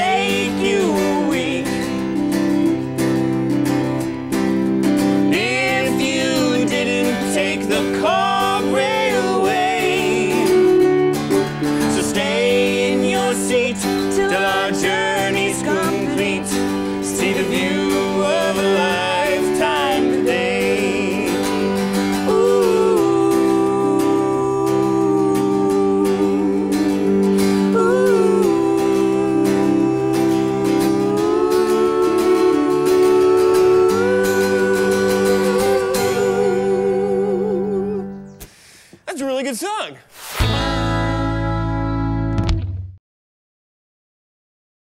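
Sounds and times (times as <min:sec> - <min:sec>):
man and woman singing: 0:00.0 - 0:02.3, 0:05.3 - 0:10.9, 0:11.8 - 0:38.4
keyboard: 0:00.0 - 0:38.5, 0:40.4 - 0:42.6
strummed acoustic guitar: 0:00.0 - 0:38.6, 0:40.3 - 0:42.7.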